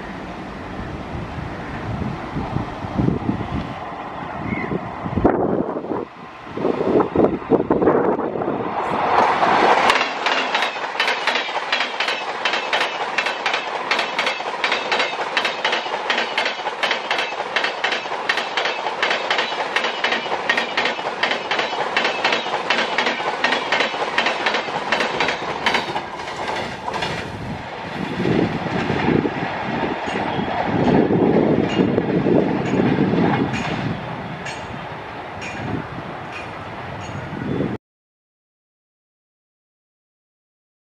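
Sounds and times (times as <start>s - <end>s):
train passing at speed: 0.0s - 37.8s
wheels clacking over rail joints: 9.0s - 27.5s.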